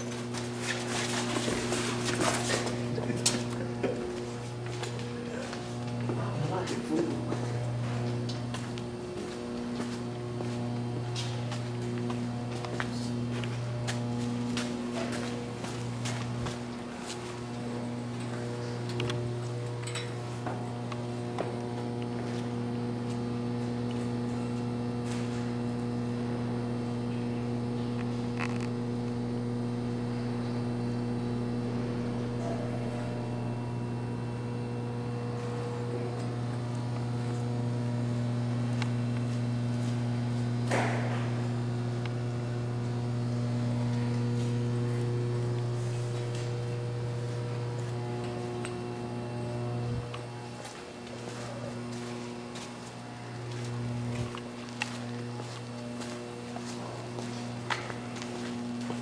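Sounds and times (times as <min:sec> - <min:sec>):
low drone with overtones: 0:25.2 - 0:38.0.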